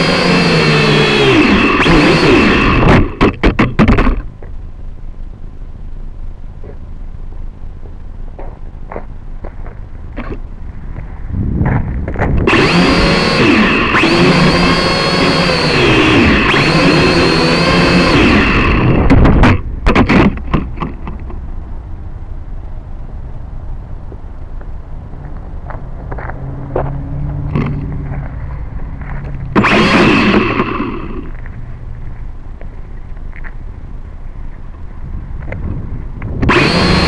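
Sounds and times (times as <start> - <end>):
drone propeller motors whining: 0.0 - 4.7, 10.1 - 21.4, 25.2 - 37.0.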